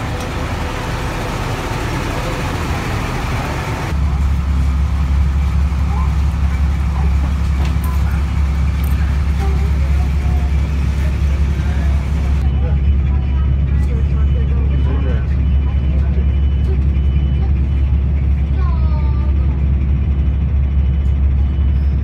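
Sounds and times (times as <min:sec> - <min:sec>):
bus engine rumble: 0:00.0 - 0:22.0
faint passengers' voices: 0:00.0 - 0:22.0.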